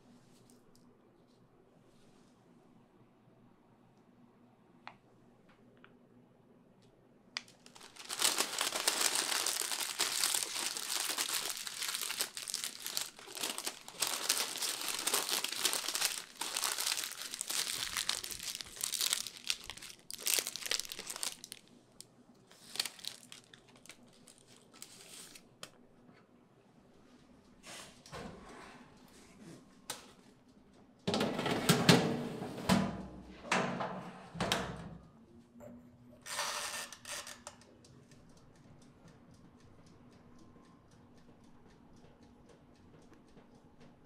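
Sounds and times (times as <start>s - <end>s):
baking paper crinkling: 7.4s - 21.7s, 22.5s - 25.5s.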